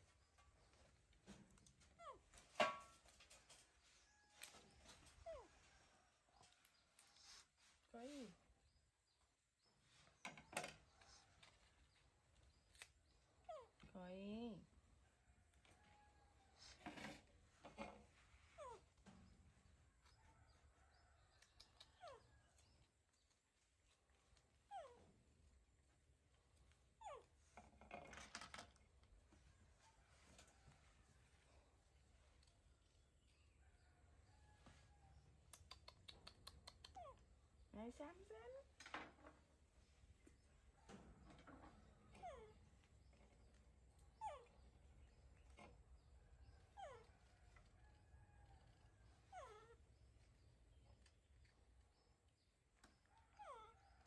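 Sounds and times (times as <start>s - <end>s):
baby monkey whimpering cries: 49.2s - 49.8s.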